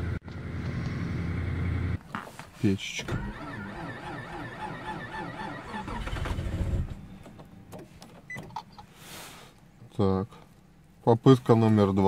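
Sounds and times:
car engine cranking: 3.0 - 8.8.

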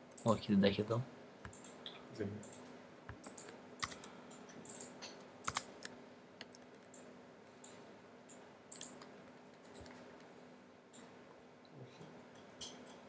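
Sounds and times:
computer keyboard keystrokes: 2.5 - 4.1, 4.7 - 7.0, 8.7 - 10.1.

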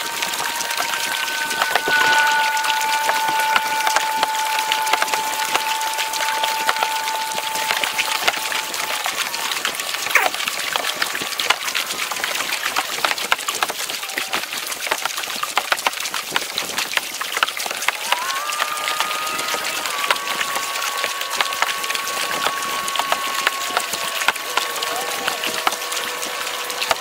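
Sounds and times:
water lapping against hull: 0.0 - 27.0.

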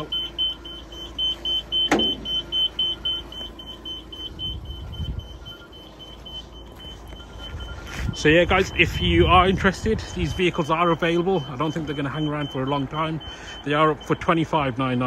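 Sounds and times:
rapid high warning beeps: 0.0 - 15.0
low rumble: 2.2 - 10.4.

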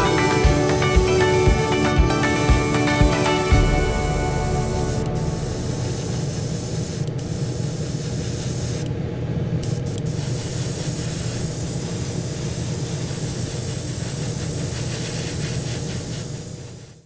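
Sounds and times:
airbrush hissing: 0.0 - 8.9, 9.6 - 17.0
low hum: 1.5 - 7.2.

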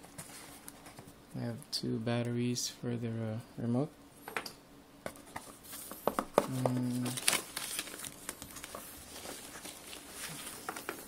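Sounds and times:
foam wrap crinkling: 5.8 - 11.0.

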